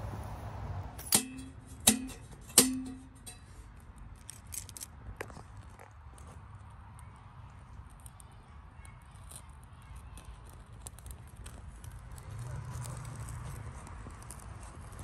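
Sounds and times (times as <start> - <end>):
tinder crackling: 0.0 - 15.0
low rumble of stove fire: 5.4 - 15.0.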